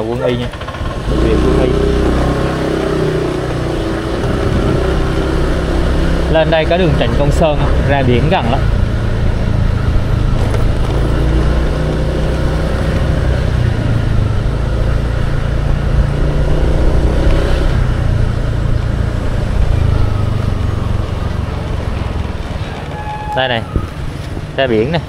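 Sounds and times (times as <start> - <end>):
vehicle rumbling along road: 0.0 - 25.0
faint engine tone: 17.9 - 24.7.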